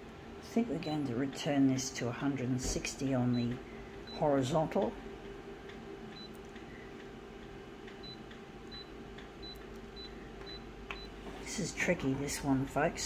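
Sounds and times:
steady low hum: 0.0s - 13.0s
short high key-press beeps: 6.1s - 6.4s, 8.0s - 11.1s.

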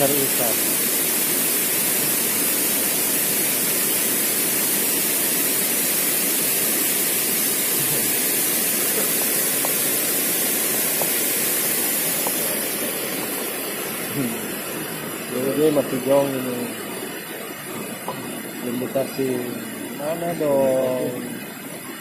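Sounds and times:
river water rushing over rocks: 6.9s - 18.7s.

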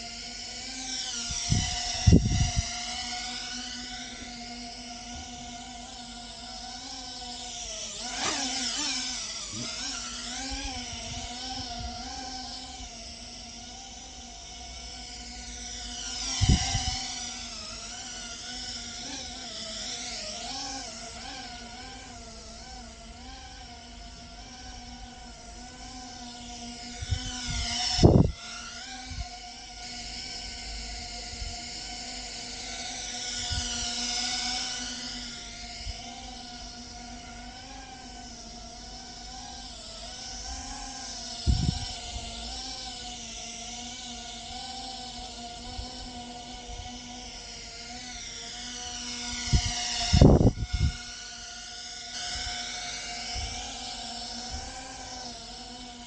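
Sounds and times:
drone motors whining: 0.0s - 56.0s.

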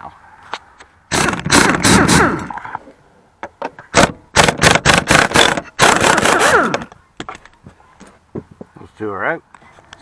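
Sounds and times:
air impact wrench hammering: 1.1s - 2.5s, 3.9s - 6.9s.

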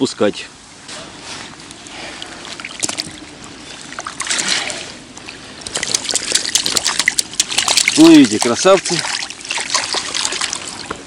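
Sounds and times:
lake water splashing: 1.1s - 11.0s
small drips and clicks: 1.6s - 3.2s, 5.1s - 11.0s.

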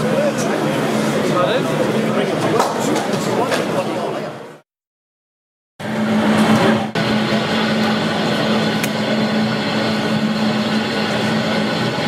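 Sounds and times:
model train mechanical hum: 5.8s - 12.0s.

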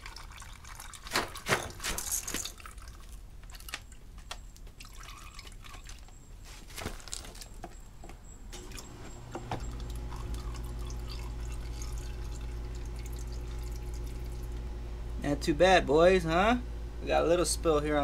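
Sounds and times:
steady low hum: 8.2s - 18.0s
fluid dripping into plastic tub: 9.5s - 14.6s.

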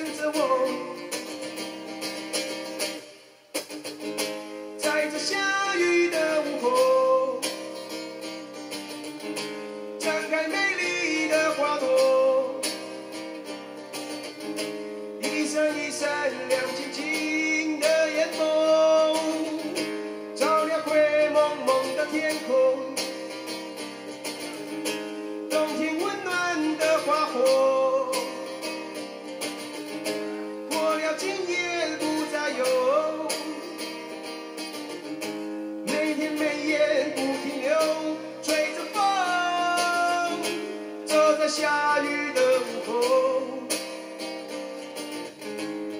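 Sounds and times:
man singing: 0.0s - 1.7s, 4.2s - 8.2s, 9.9s - 13.0s, 15.2s - 23.8s, 25.5s - 29.0s, 30.0s - 34.2s, 35.8s - 44.5s
strummed acoustic guitar: 0.0s - 45.9s.

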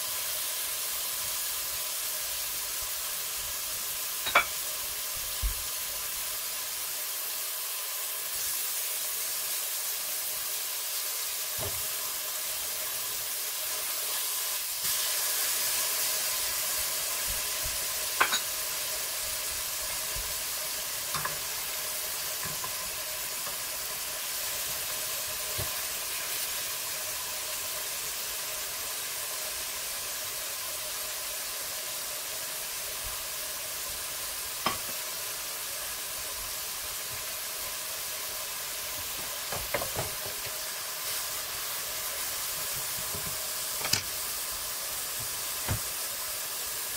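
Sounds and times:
steak sizzling in a pan: 0.0s - 46.9s.

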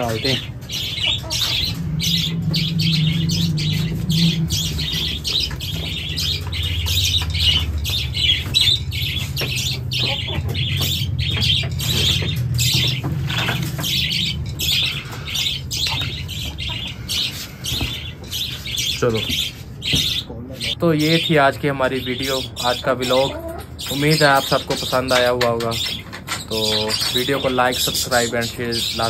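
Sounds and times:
steady low hum: 0.0s - 22.6s
caged birds squawking and chirping: 0.0s - 29.0s.

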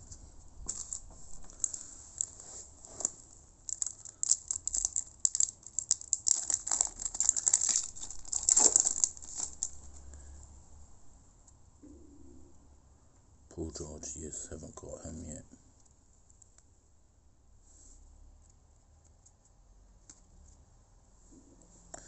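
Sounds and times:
foil wrapper crinkling and tearing: 3.0s - 10.0s.

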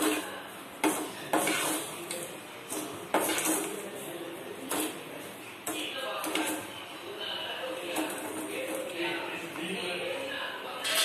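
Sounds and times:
salt grains scraping in pan: 0.0s - 3.8s.

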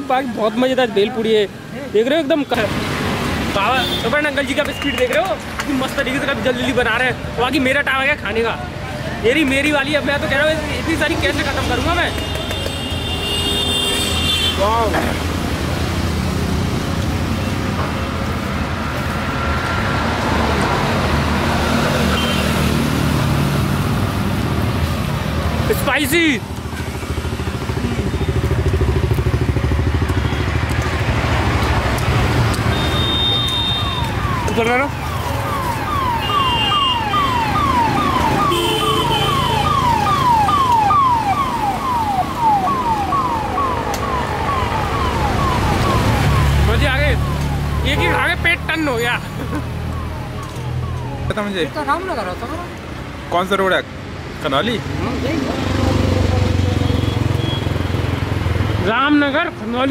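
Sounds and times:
road traffic drone: 0.0s - 59.9s
electronic vehicle siren: 32.7s - 52.6s.

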